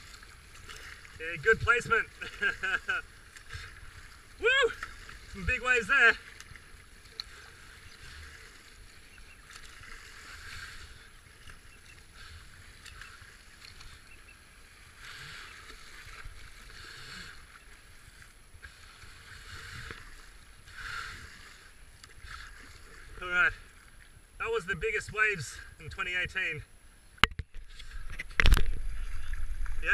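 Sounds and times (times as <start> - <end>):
whitewater rushing and splashing: 0.0 - 18.2.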